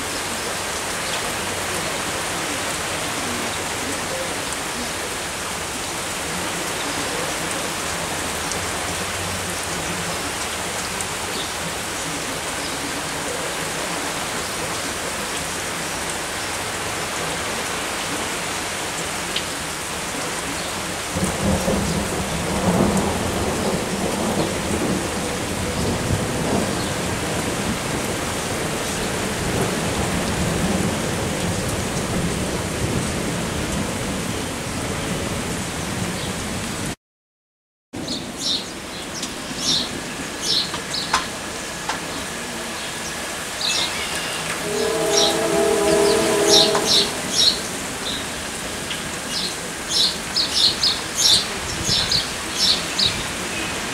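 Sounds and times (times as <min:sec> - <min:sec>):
steady rain falling: 0:00.0 - 0:37.0, 0:38.0 - 0:53.9
thunder rumbling: 0:44.6 - 0:48.9.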